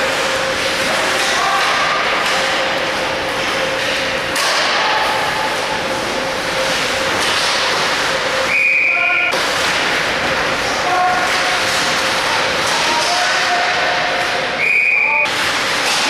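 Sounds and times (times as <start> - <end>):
pucks and sticks knocking: 0.0 - 8.2, 9.3 - 14.4, 15.2 - 16.0
skates scraping ice: 5.5 - 8.6
whistle blown: 8.5 - 9.4, 14.6 - 15.3.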